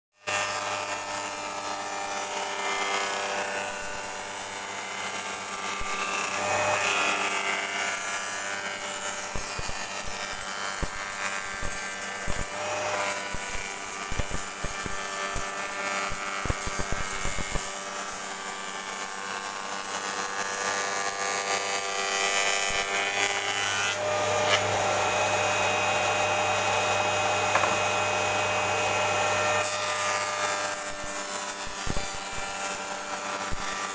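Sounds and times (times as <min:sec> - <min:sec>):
cutter shaping wood: 0:00.2 - 0:33.9
spindle moulder machine hum: 0:23.8 - 0:30.4.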